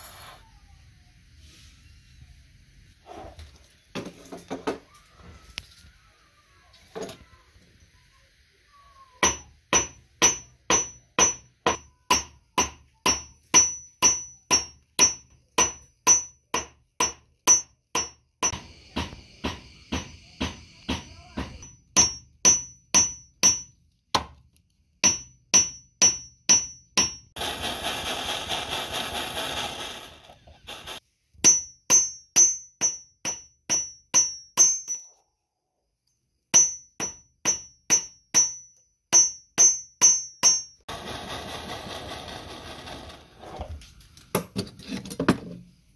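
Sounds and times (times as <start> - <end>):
hammer striking metal on anvil: 9.2 - 24.3, 25.0 - 27.4, 31.4 - 35.1, 36.6 - 40.8.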